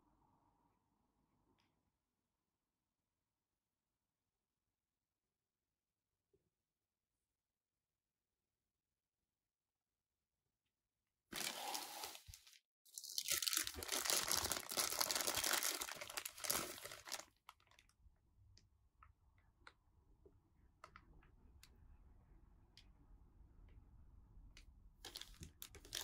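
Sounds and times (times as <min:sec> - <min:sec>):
plastic bag crinkling: 0:11.4 - 0:17.8, 0:25.1 - 0:26.0.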